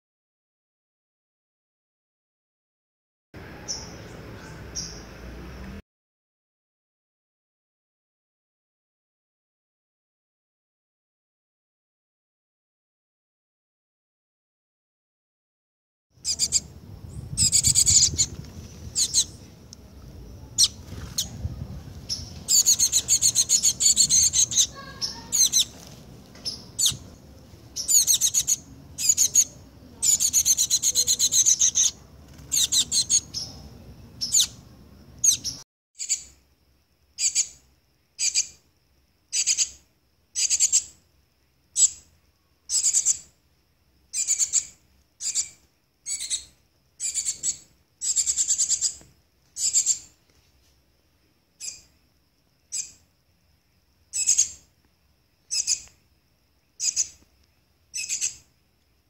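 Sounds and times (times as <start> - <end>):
fledgling bird begging calls: 16.2 - 19.4, 20.4 - 21.5, 22.1 - 36.3.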